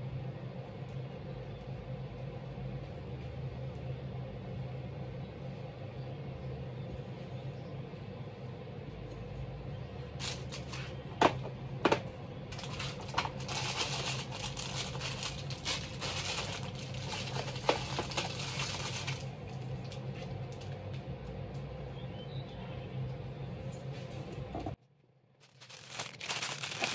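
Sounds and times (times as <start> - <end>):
steady low hum: 0.0 - 26.9
plastic crinkling: 10.2 - 10.8, 12.6 - 20.0, 25.4 - 26.9.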